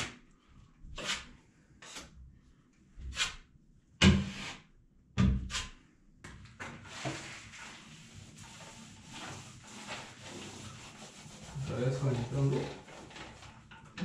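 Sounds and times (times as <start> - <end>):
knife scraping compound on ceiling: 0.8 - 2.2, 3.0 - 4.7, 5.4 - 5.8, 6.8 - 14.0.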